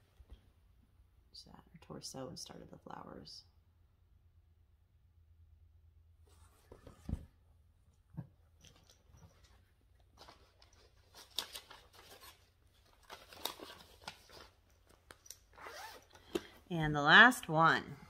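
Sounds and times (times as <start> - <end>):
paper and plastic crinkling: 9.4 - 15.3.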